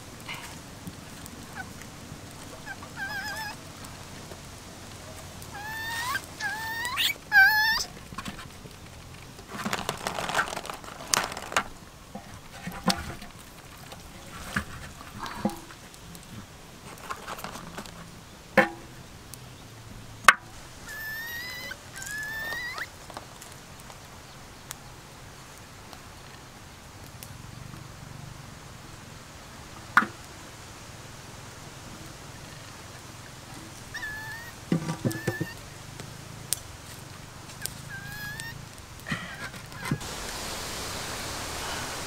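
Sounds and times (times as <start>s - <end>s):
young monkey squeaky calls: 1.5s - 1.8s, 2.4s - 3.6s, 5.5s - 8.0s, 20.8s - 23.0s, 33.8s - 35.6s, 37.6s - 38.6s, 39.6s - 40.0s.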